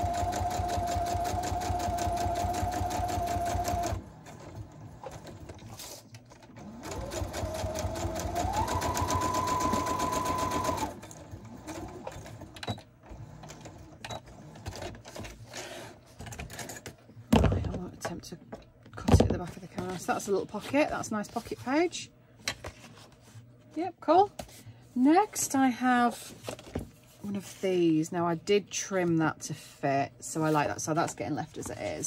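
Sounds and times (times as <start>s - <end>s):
sewing machine stitching: 0.0s - 15.2s.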